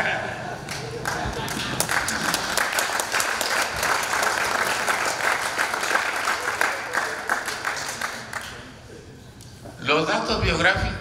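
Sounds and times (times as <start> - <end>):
audience applauding: 0.6 - 8.7.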